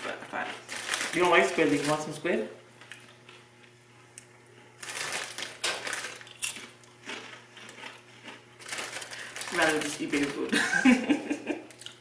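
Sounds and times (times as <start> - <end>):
person chewing crunchy chips: 0.0 - 2.2, 2.9 - 3.7, 4.6 - 10.5, 11.7 - 12.0.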